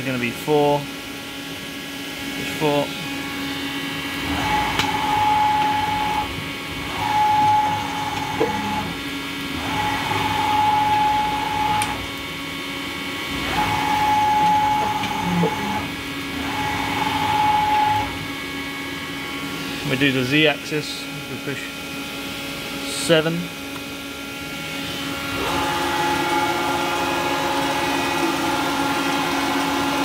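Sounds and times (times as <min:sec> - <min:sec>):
steady machine hum: 0:00.0 - 0:30.0
servo drive whine: 0:02.4 - 0:12.2, 0:13.3 - 0:21.6, 0:24.3 - 0:30.0.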